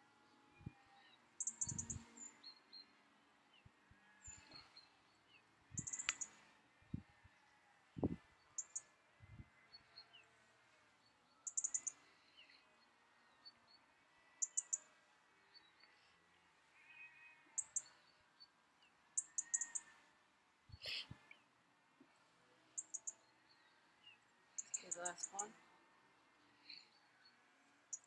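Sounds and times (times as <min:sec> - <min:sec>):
birds calling: 0:01.4 - 0:02.7, 0:05.4 - 0:06.6, 0:11.5 - 0:12.7, 0:19.2 - 0:20.0, 0:24.1 - 0:25.5.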